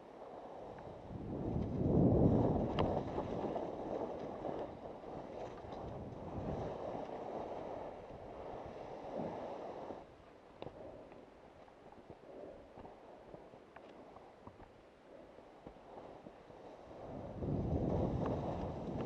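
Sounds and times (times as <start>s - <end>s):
wind rushing over microphone: 0.0s - 11.1s, 15.6s - 19.0s
skis hissing and scraping on snow: 6.3s - 10.1s.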